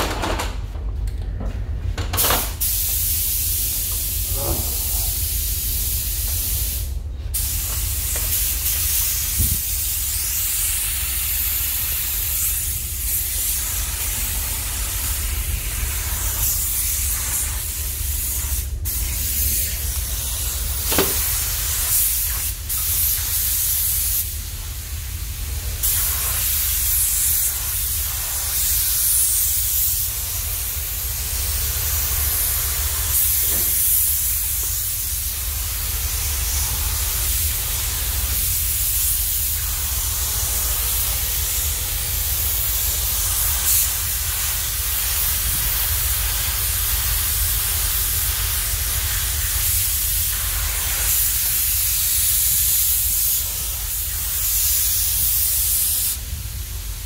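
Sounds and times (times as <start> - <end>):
steady low rumble: 0.6 - 2.2, 2.8 - 33.4
paint spray gun hissing: 2.4 - 56.8.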